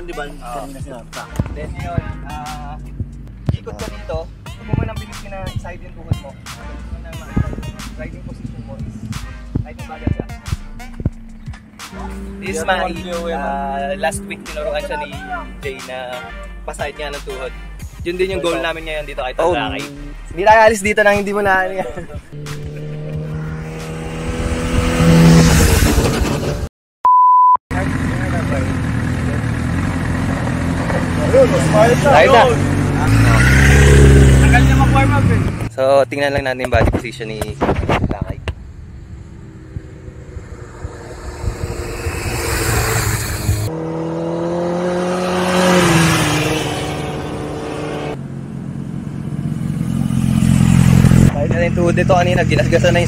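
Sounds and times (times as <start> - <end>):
motorcycle engine passing: 4.4 - 14.6, 21.9 - 26.7, 27.8 - 35.7, 38.6 - 53.0
short high pure beep: 27.0 - 27.6.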